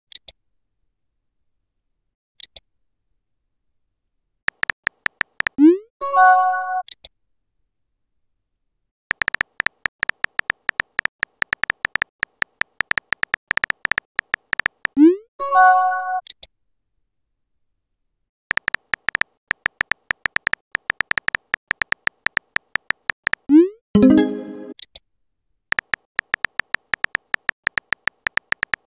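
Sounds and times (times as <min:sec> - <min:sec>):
keyboard taps: 0:04.5 - 0:05.6, 0:09.1 - 0:15.0, 0:18.5 - 0:23.5, 0:25.7 - 0:28.9.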